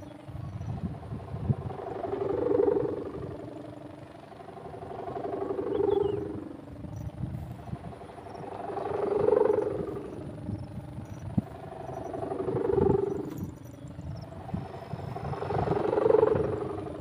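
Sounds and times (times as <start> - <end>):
kite humming bow droning: 0.0 - 17.0
wind buffeting microphone: 0.0 - 17.0.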